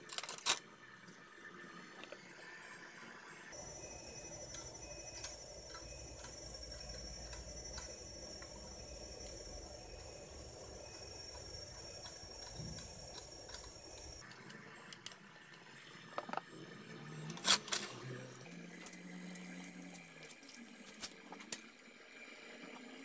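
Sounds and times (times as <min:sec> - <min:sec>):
metal parts clicking and knocking: 0:00.0 - 0:00.6.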